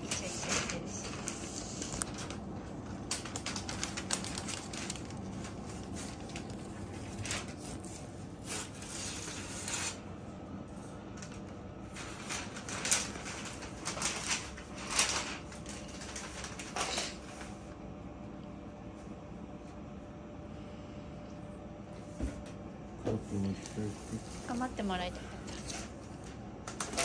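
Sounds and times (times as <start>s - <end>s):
low room hum: 0.0s - 27.0s
newspaper rustling: 0.1s - 10.0s, 11.2s - 17.6s.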